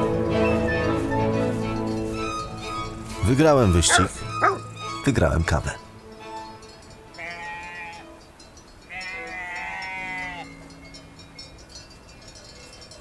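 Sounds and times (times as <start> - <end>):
sheep bleating: 7.2 - 8.0, 8.9 - 10.5.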